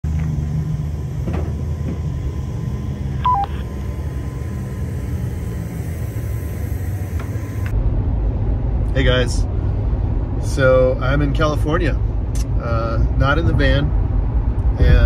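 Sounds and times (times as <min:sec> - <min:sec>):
low mechanical drone: 0:00.0 - 0:15.0
two-tone electronic beep: 0:03.2 - 0:03.7.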